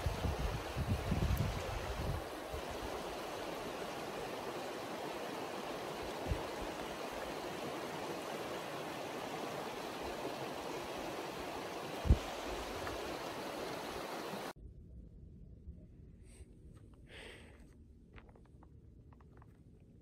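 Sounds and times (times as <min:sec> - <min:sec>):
river rushing over rocks: 0:00.0 - 0:14.5.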